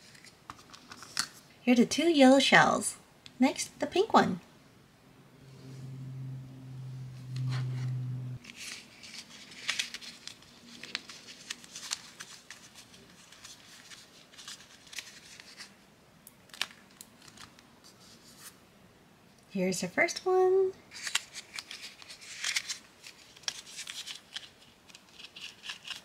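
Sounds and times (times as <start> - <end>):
low steady hum: 3.0 - 9.1.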